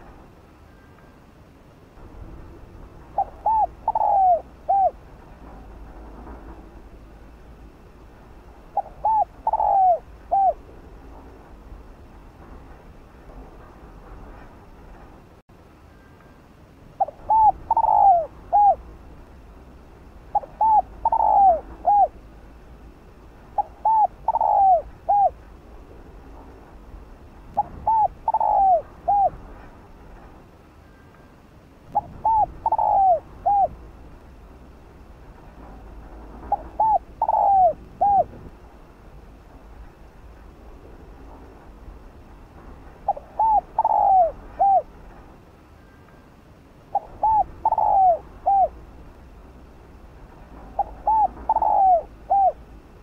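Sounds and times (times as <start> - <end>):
dove cooing: 3.1 - 5.0, 8.7 - 10.7, 17.0 - 18.8, 20.3 - 22.2, 23.5 - 25.4, 27.6 - 29.4, 32.0 - 33.8, 36.5 - 38.4, 43.1 - 44.9, 46.9 - 48.8, 50.7 - 52.6.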